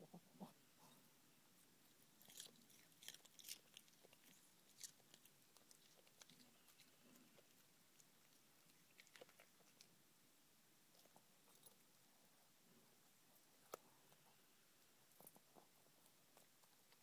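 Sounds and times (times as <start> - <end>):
dog crunching carrot: 2.0 - 10.0.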